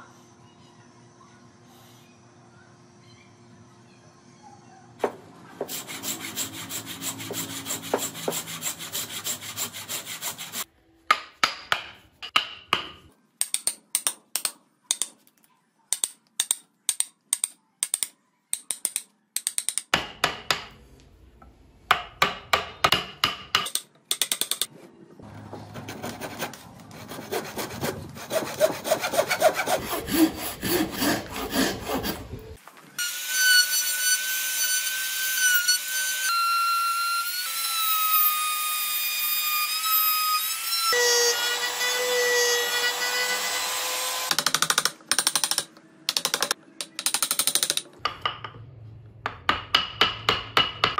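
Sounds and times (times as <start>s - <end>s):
handsaw cutting wood: 5.6s - 10.7s, 25.7s - 32.6s
mallet striking chisel: 11.1s - 15.1s, 16.0s - 20.8s, 21.9s - 24.7s, 44.3s - 50.9s.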